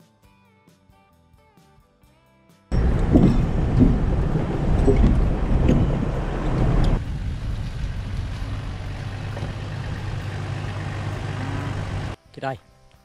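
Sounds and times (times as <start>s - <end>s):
diesel engine running: 2.7s - 12.2s.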